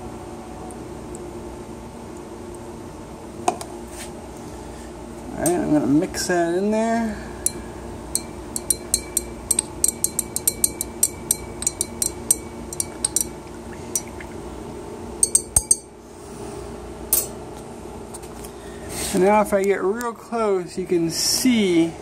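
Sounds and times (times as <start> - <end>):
glass rod clinking in beaker: 8.2 - 14.2, 15.2 - 15.9, 17.1 - 17.3.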